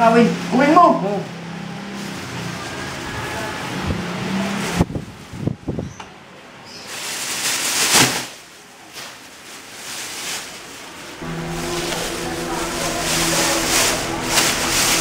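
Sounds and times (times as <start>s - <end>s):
plastic bags rustling: 1.8s - 5.4s, 6.7s - 15.0s.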